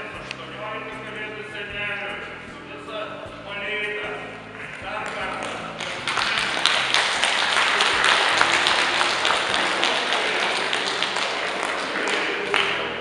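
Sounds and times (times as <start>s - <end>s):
crowd clapping: 4.6s - 13.0s.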